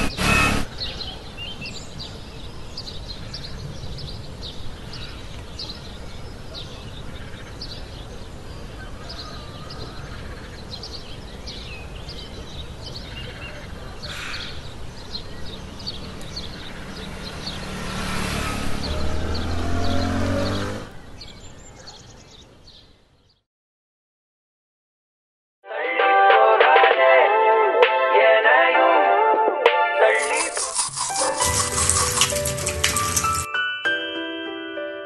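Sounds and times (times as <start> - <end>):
motor scooter engine: 0.0 - 0.8, 15.6 - 21.0, 30.2 - 33.5.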